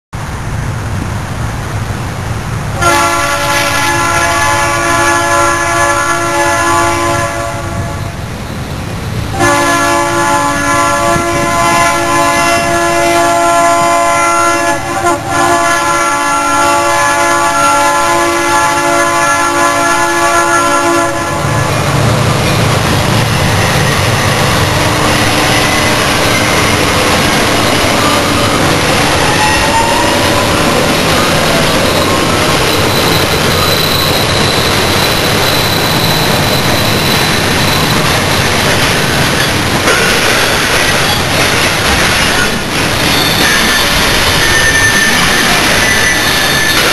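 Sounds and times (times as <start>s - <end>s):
diesel engines rumbling: 0.2s - 46.9s
locomotive air horn blasts: 2.8s - 8.2s, 9.3s - 22.2s, 23.6s - 32.5s.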